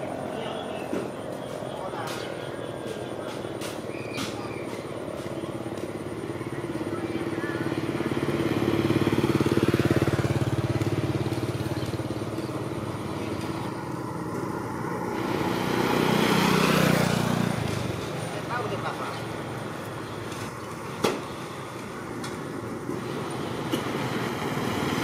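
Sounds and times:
motorcycle engines passing: 0:00.0 - 0:25.0.

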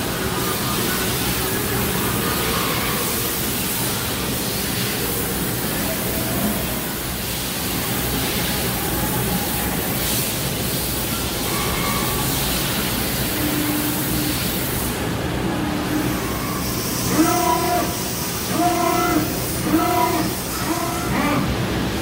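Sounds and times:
lathe spindle whirring: 0:12.4 - 0:22.0.

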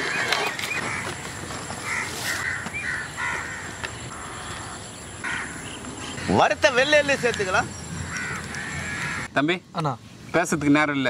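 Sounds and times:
crows cawing: 0:00.7 - 0:09.3.

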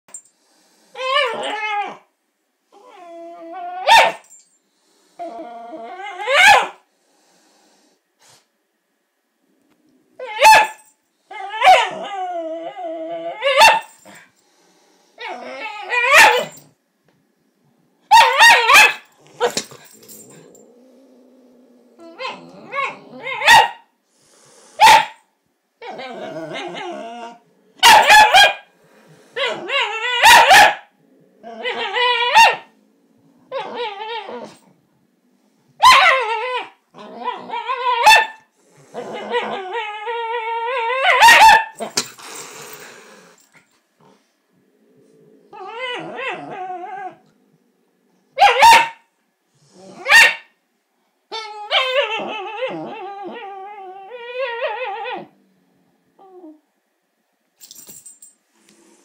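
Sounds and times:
dog whining growls: 0:00.9 - 0:02.1, 0:02.7 - 0:04.0, 0:05.2 - 0:06.5, 0:11.3 - 0:14.1, 0:15.2 - 0:16.7, 0:18.4 - 0:23.6, 0:25.8 - 0:27.9, 0:29.0 - 0:34.8, 0:35.9 - 0:47.8, 0:49.6 - 0:50.2, 0:51.3 - 0:56.7
dog barking: 0:03.9 - 0:04.2, 0:06.3 - 0:06.8, 0:18.1 - 0:19.0, 0:23.4 - 0:23.8, 0:24.8 - 0:25.2, 0:27.8 - 0:28.7, 0:30.2 - 0:30.9, 0:41.1 - 0:41.8, 0:48.4 - 0:49.0, 0:50.1 - 0:50.5.

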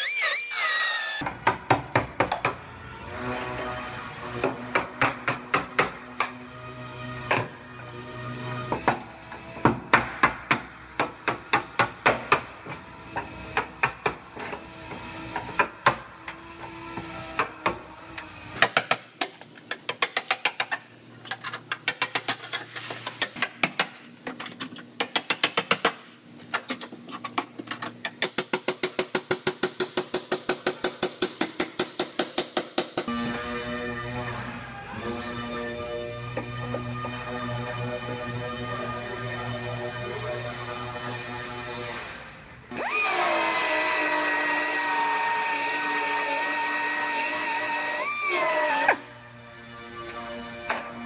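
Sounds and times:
background music: 0:47.8 - 0:51.0.

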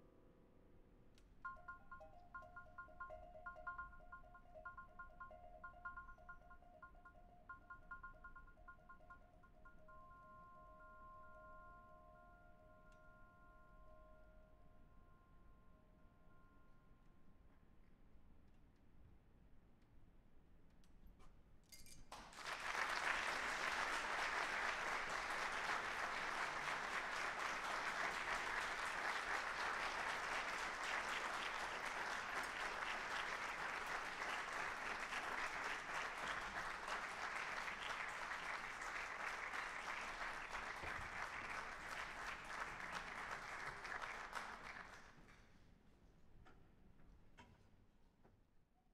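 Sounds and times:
audience applauding: 0:22.2 - 0:45.2.

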